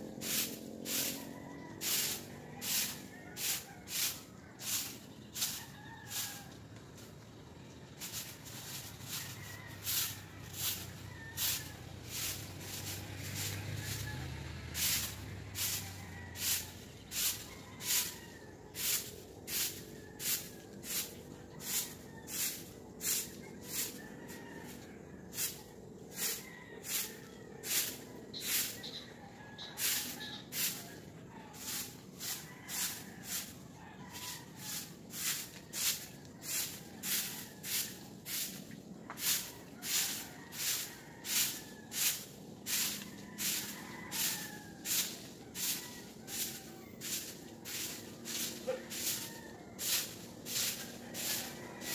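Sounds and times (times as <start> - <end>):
broom sweeping on concrete: 0.0 - 51.9.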